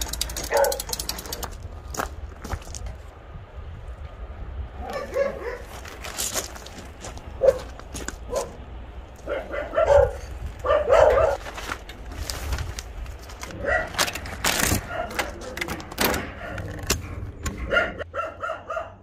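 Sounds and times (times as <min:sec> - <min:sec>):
dogs barking and yipping: 0:00.0 - 0:01.5, 0:04.8 - 0:06.0, 0:07.4 - 0:08.6, 0:09.2 - 0:11.5, 0:13.5 - 0:14.2, 0:14.8 - 0:15.6, 0:16.2 - 0:16.7, 0:17.6 - 0:19.0
plastic sheeting crackling and tearing: 0:11.4 - 0:15.6.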